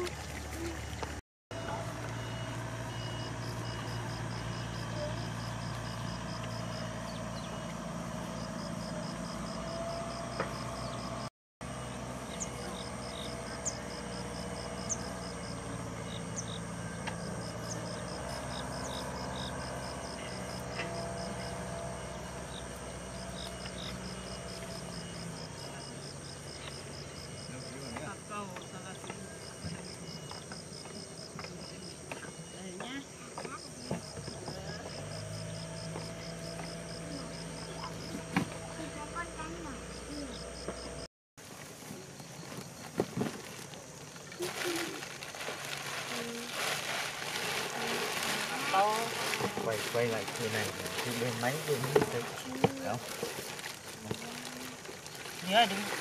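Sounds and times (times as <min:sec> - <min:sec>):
low motor hum: 0:00.0 - 0:41.1, 0:42.4 - 0:56.0.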